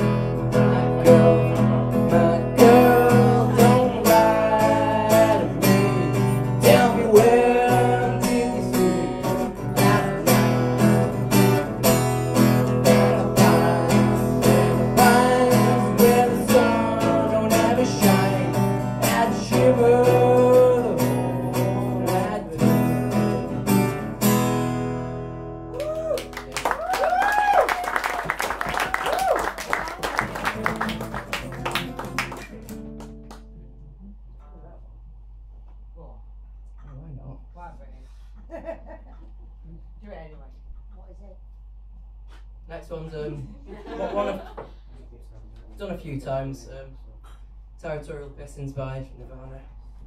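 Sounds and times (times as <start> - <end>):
young man singing: 0.0 - 11.1, 12.8 - 23.6
acoustic guitar strumming: 0.0 - 25.7.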